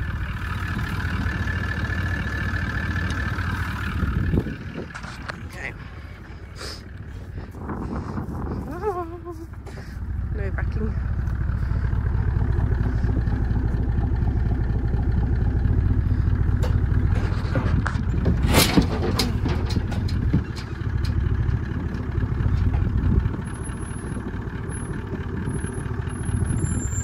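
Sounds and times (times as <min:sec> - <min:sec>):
farm machine engine running: 0:00.0 - 0:27.0
sharp knocks and clatters: 0:16.5 - 0:23.1.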